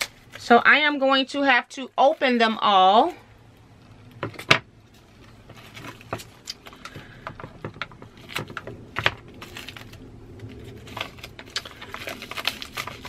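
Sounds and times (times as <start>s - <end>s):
plastic shrink-wrap crackling: 4.8s - 13.0s.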